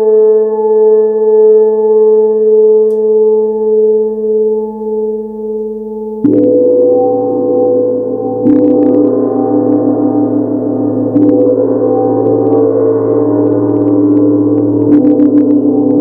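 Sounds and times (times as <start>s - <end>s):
large gong struck with mallet: 6.2s - 16.0s.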